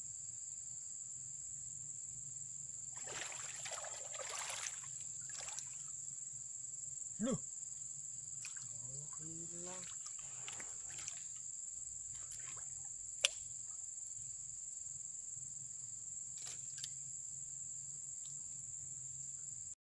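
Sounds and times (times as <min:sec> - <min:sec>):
insects chirring: 0:00.0 - 0:19.8
faint ticks: 0:09.8 - 0:11.4, 0:16.4 - 0:17.0, 0:18.1 - 0:18.5.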